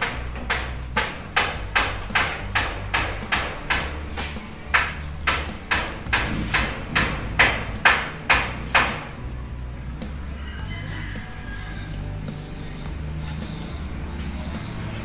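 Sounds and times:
sharp taps: 0.0s - 9.1s
low background hum: 0.0s - 15.0s.

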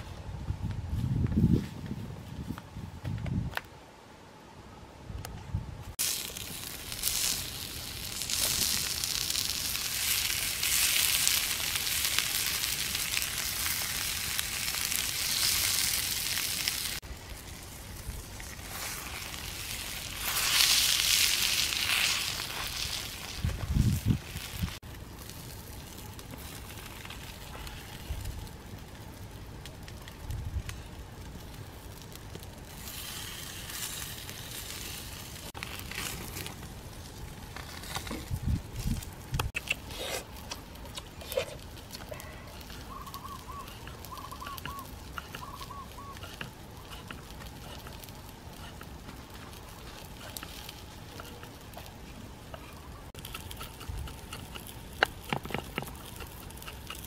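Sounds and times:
wood fire crackling: 5.8s - 57.0s
short bird calls: 42.8s - 46.3s.

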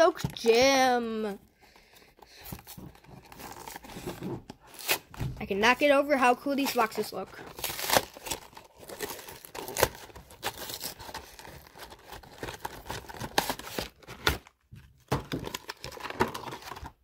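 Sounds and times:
cardboard tearing and crinkling: 2.3s - 5.3s, 6.4s - 17.0s.

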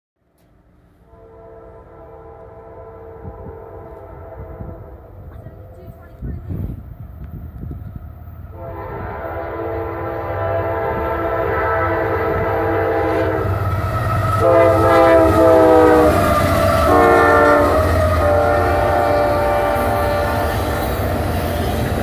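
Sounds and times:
diesel locomotive rumble: 0.2s - 22.0s
locomotive air horn: 1.0s - 5.3s, 8.5s - 22.0s
train wheels clattering: 13.4s - 22.0s.

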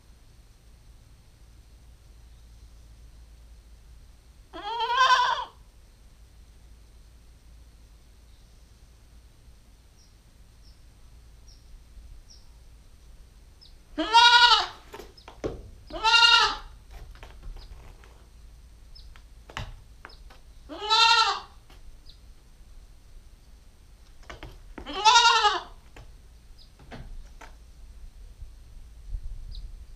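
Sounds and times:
goat kid bleating: 4.5s - 5.6s, 14.0s - 14.8s, 15.9s - 16.8s, 20.7s - 21.6s, 24.8s - 25.8s
sharp knocks: 15.0s - 15.9s.

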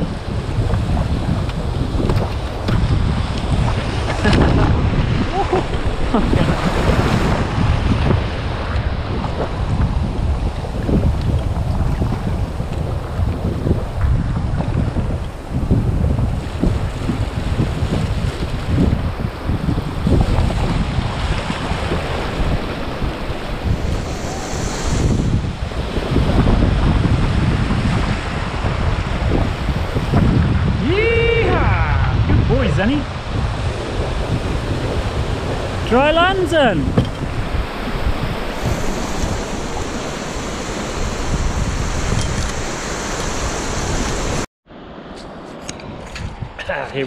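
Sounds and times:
wind buffeting microphone: 0.0s - 47.0s
small surf breaking: 20.0s - 31.4s, 32.7s - 46.4s.

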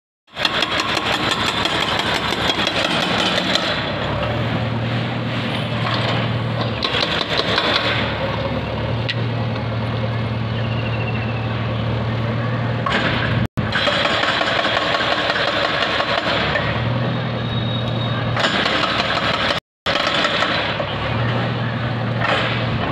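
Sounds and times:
knocks and clatter: 0.3s - 4.1s, 5.8s - 8.2s.

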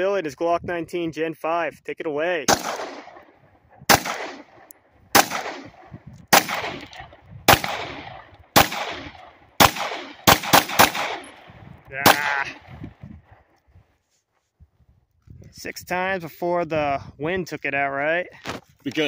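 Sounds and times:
pistol shots echoing: 2.5s - 12.8s.

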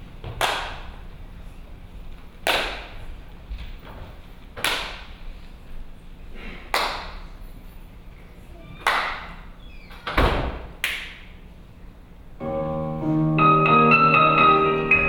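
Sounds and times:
sharp hand claps: 0.3s - 1.0s, 2.4s - 3.1s, 4.6s - 5.2s, 6.7s - 7.3s, 8.8s - 9.4s, 10.8s - 11.3s.

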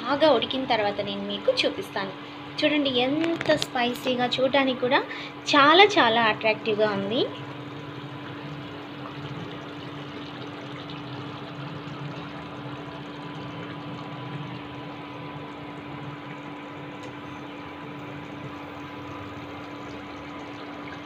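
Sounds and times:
curry bubbling and sizzling: 5.5s - 21.0s.

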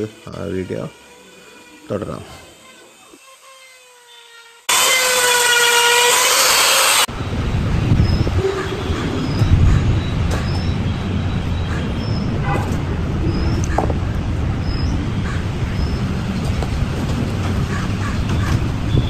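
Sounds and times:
die grinder whining: 0.0s - 7.1s.

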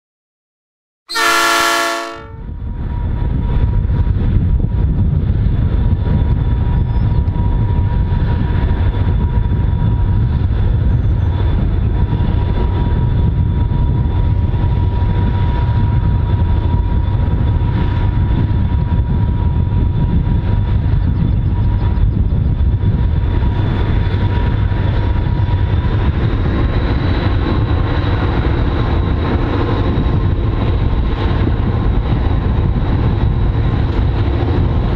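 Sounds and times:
locomotive horn blast: 1.1s - 2.5s
diesel locomotive engine rumble: 1.1s - 34.9s.

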